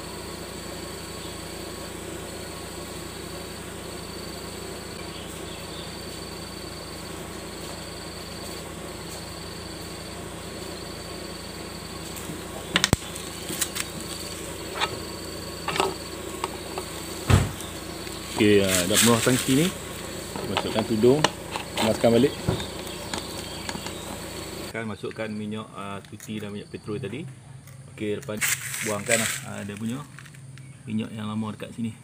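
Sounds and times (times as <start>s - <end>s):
insect chirring: 0.0s - 31.8s
sharp clicks and knocks: 12.2s - 14.0s, 15.6s - 18.2s
fuel trickling into plastic tank: 12.7s - 24.7s.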